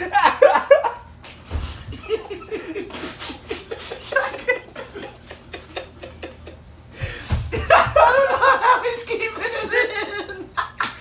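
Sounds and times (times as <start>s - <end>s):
people laughing: 0.0s - 11.0s
muffled laughter and snorts: 1.4s - 6.6s.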